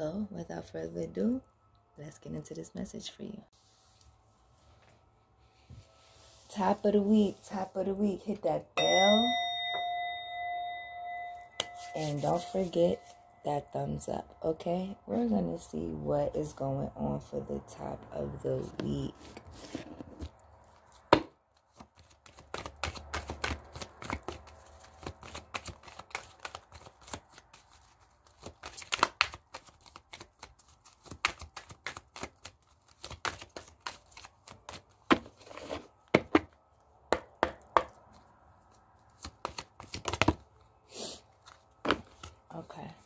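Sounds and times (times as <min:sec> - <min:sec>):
cards being shuffled: 0:19.2 - 0:35.9, 0:38.1 - 0:40.6, 0:41.4 - 0:42.5.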